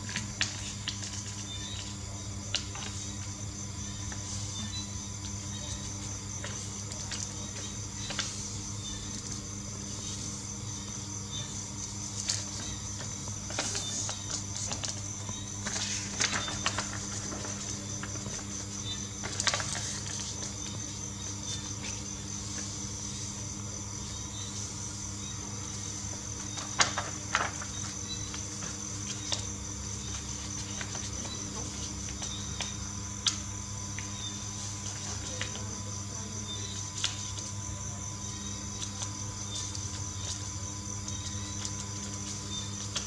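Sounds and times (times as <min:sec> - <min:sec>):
low electrical hum: 0:00.0 - 0:43.0
paper rustling and creasing: 0:12.1 - 0:20.8, 0:26.4 - 0:33.4.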